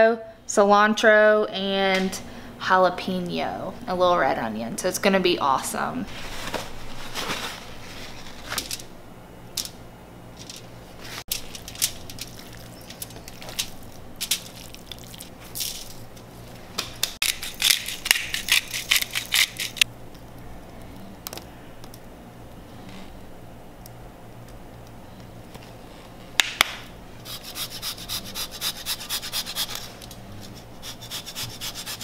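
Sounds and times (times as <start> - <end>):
aluminum foil crinkling: 10.4 - 16.6, 17.2 - 19.9.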